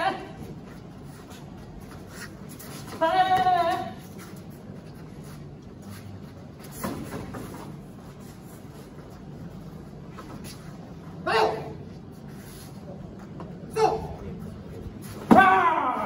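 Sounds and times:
low room hum: 0.0s - 16.0s
high-pitched shout: 15.3s - 16.0s.

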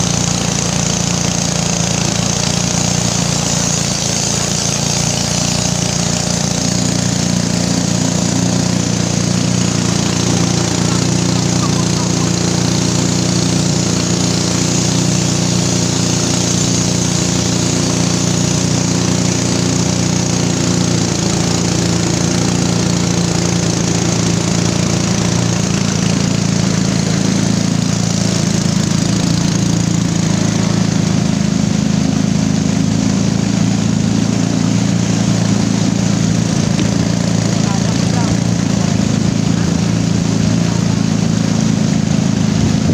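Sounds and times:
outboard motor running: 0.0s - 42.9s
rushing water: 0.0s - 42.9s
wind: 0.0s - 42.9s.

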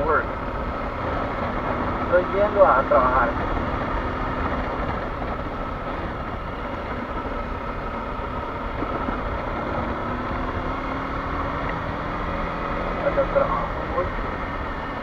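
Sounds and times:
motorcycle engine running: 0.0s - 15.0s
wind noise on microphone: 3.0s - 12.2s.

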